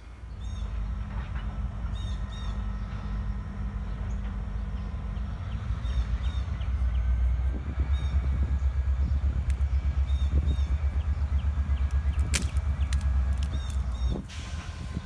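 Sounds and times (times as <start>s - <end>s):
faint hum: 0.0s - 14.2s
low rumble: 0.0s - 15.0s
bird chirping: 0.2s - 14.2s.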